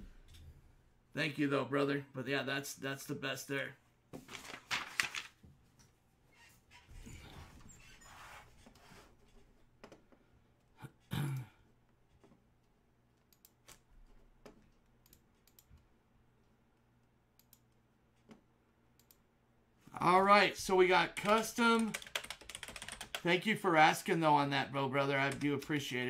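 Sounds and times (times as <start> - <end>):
computer keyboard clicking: 21.2 - 23.3.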